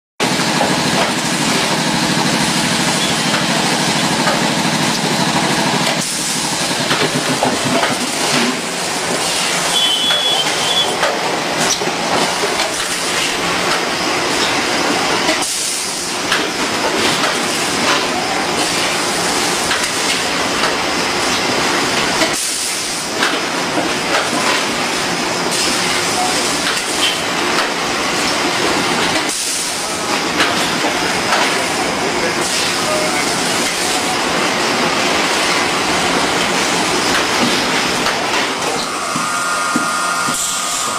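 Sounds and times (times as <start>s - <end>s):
short high beep: 9.7s - 11.0s.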